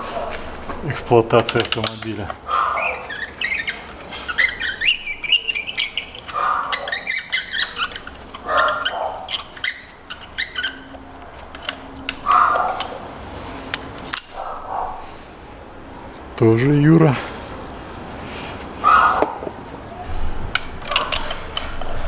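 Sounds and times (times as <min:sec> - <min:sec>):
short squeaks: 0:02.6 - 0:12.8.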